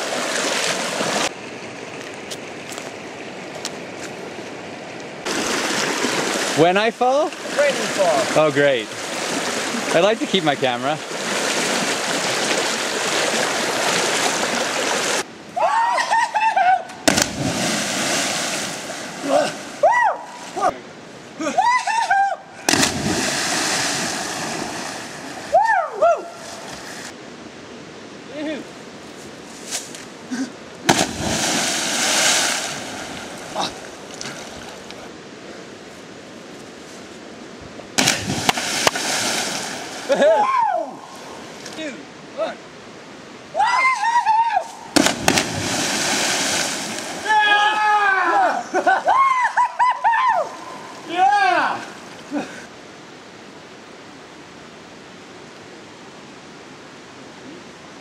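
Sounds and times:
creek water rushing: 0.0s - 15.8s, 16.8s - 21.6s, 22.4s - 44.0s, 44.7s - 49.3s
churning water: 5.2s - 15.3s
people yelling: 15.6s - 17.0s, 25.5s - 26.4s, 40.1s - 41.1s, 43.6s - 44.9s, 47.2s - 51.9s
splash into water: 17.0s - 19.7s, 22.7s - 25.4s, 30.9s - 34.5s, 38.0s - 40.1s, 45.0s - 47.3s.

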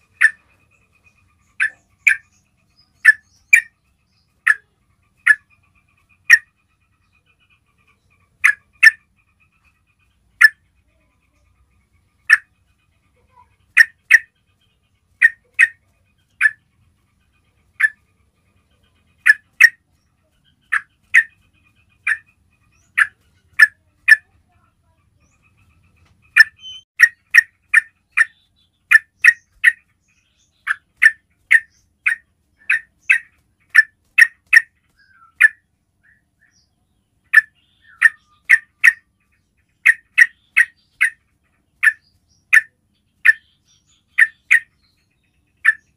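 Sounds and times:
bird giving sharp chirps: 0.0s - 6.6s, 20.6s - 24.3s, 25.2s - 35.6s.

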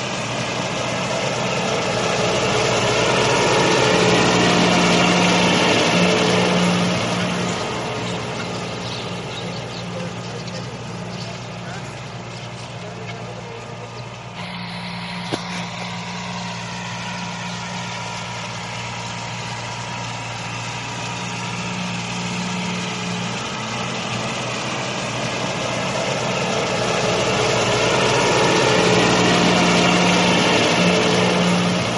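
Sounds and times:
motor whining: 14.3s - 21.7s.

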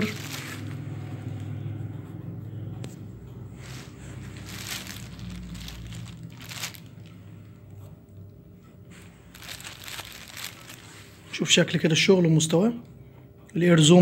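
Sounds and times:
plastic bags crinkling: 0.0s - 1.0s, 3.6s - 7.2s, 9.2s - 11.4s.

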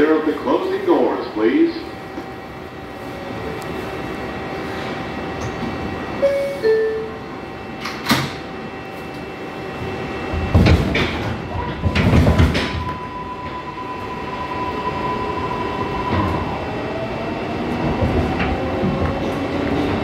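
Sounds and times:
train rumbling and motor whine: 0.0s - 20.0s
two-note door chime: 6.2s - 7.2s.

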